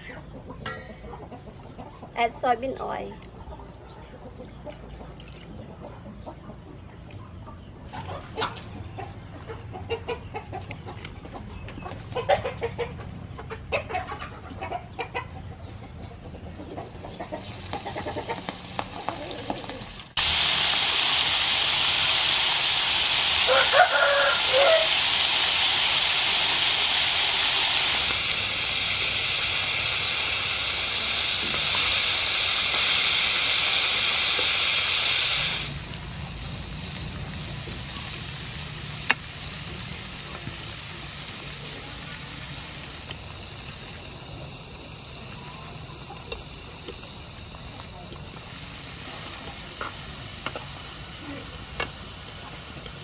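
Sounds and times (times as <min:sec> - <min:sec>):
chickens clucking: 0:00.0 - 0:20.2, 0:23.0 - 0:35.6, 0:36.2 - 0:48.5
food deep-frying in hot oil: 0:17.0 - 0:53.0
rooster crowing: 0:23.4 - 0:25.0.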